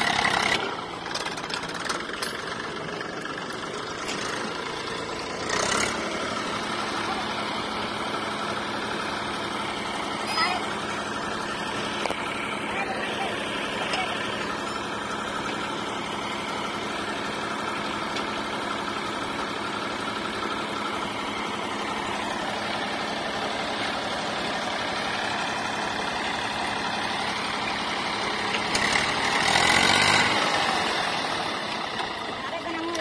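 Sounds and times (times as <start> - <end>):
tractor diesel engine running: 0.0 - 33.0.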